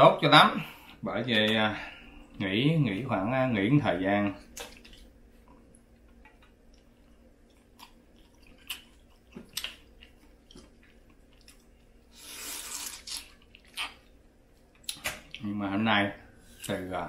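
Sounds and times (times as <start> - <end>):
chewing: 4.5 - 15.4.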